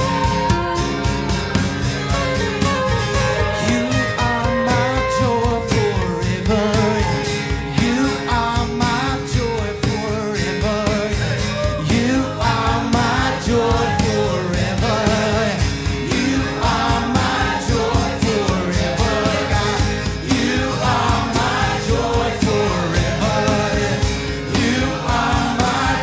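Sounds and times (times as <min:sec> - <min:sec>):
worship band music: 0:00.0 - 0:26.0
person singing with vibrato: 0:03.2 - 0:26.0.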